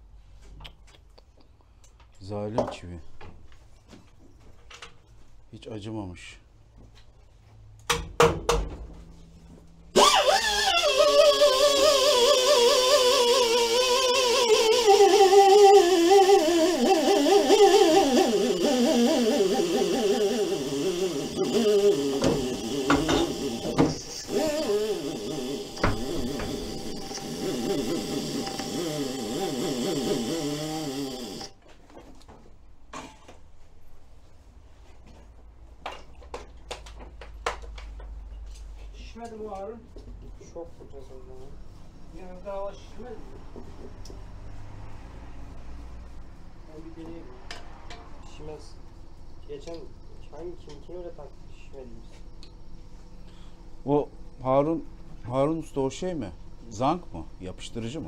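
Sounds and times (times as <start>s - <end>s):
compressed air hissing from hose: 17.1s - 31.0s.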